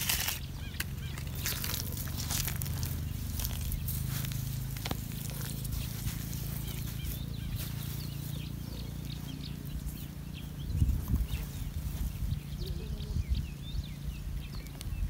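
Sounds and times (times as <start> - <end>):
hands scratching dry soil: 0.0 - 10.1
steady low rumble: 0.0 - 15.0.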